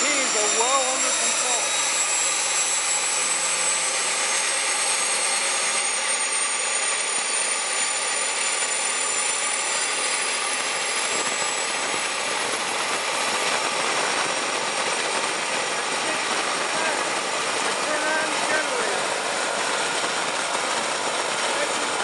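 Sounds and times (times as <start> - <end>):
turboprop engine turbine whine rising: 0.0 - 22.0.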